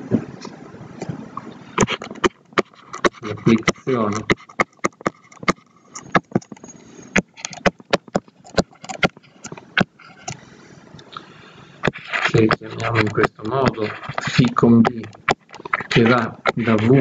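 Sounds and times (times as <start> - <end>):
stylus tapping on tablet screen: 1.8 - 10.4, 11.8 - 17.0.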